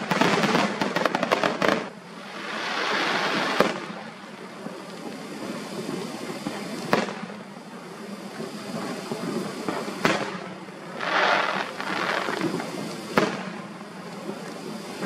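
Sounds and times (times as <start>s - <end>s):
firework booms: 0.0s - 4.1s, 5.8s - 7.4s, 8.7s - 13.7s
firework crackling hiss: 0.0s - 15.0s.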